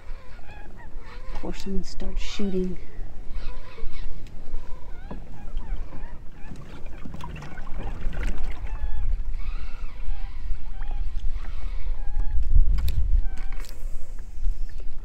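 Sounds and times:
ducks calling: 0:00.0 - 0:12.4
wind buffeting microphone: 0:00.0 - 0:15.0.

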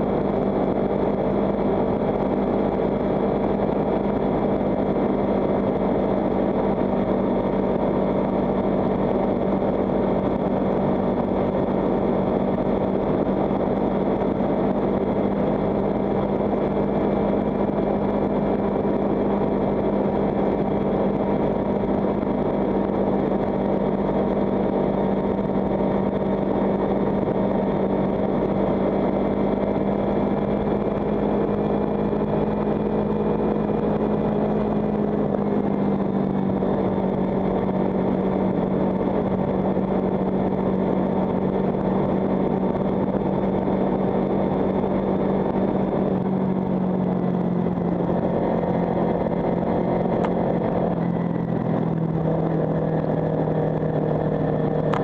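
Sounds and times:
motorcycle engine running steadily: 0:00.0 - 0:55.0
wind noise on microphone: 0:00.0 - 0:55.0.

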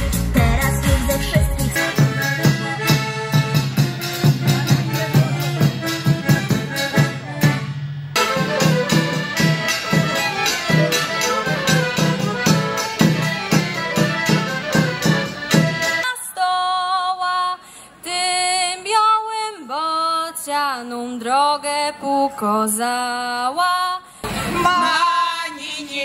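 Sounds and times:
woman singing unaccompanied: 0:00.0 - 0:03.5, 0:15.9 - 0:26.0
folk band playing lively tune: 0:00.0 - 0:16.1.

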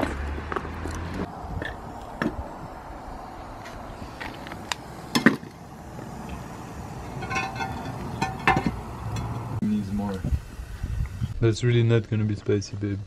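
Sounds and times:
pot lid clanks: 0:07.1 - 0:09.3
metal pot and lid knocking: 0:07.1 - 0:09.4.

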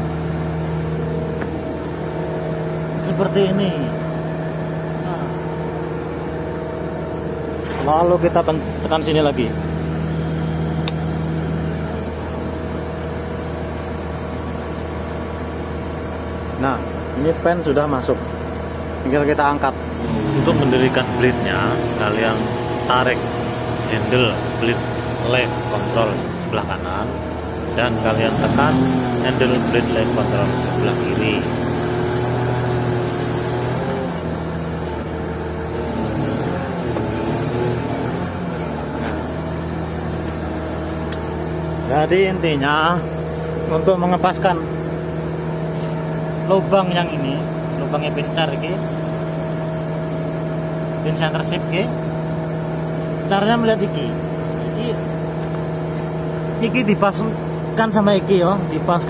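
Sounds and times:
diesel engine idling: 0:00.0 - 0:58.9
wavering hydraulic whine: 0:19.9 - 0:47.6.

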